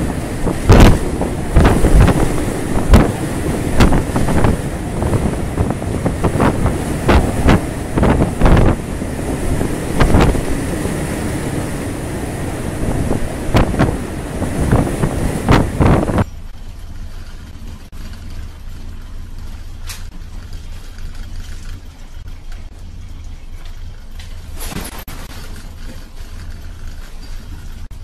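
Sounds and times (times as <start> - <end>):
gusts buffeting microphone: 0.0 - 18.2
sea: 0.0 - 22.7
gale wind: 0.0 - 28.0.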